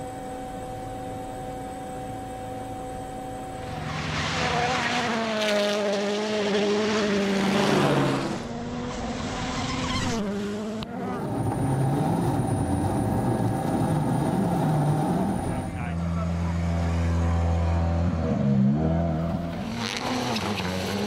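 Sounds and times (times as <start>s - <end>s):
thin high whine: 0.0s - 6.0s
rally car engine at high revs: 3.6s - 21.0s.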